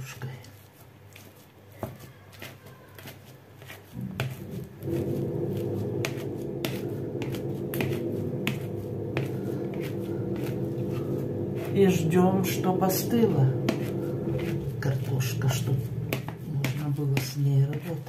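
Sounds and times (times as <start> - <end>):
steady low hum: 4.0 - 18.0.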